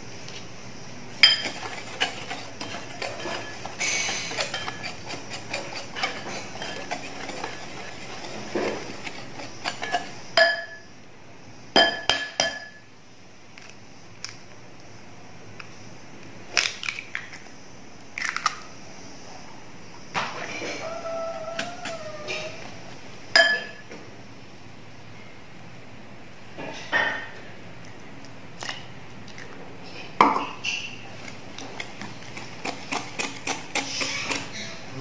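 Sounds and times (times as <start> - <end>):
whisk stirring in glass bowl: 1.2 - 10.2, 31.5 - 34.6.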